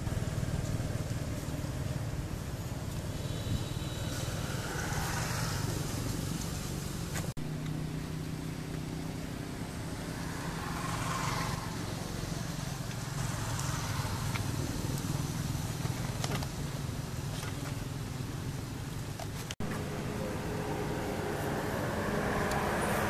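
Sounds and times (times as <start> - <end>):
hiss: 2.8 - 7.3.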